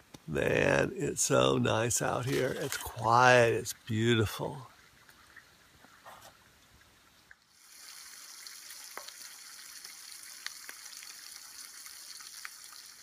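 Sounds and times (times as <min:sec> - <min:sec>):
bacon sizzling in a frying pan: 0:07.5 - 0:13.0.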